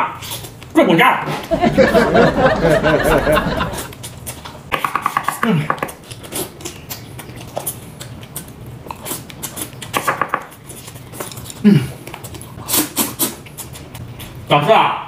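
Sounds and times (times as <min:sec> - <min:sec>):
man chewing wetly: 0:03.1 - 0:14.5
slurping noodles: 0:10.6 - 0:14.0.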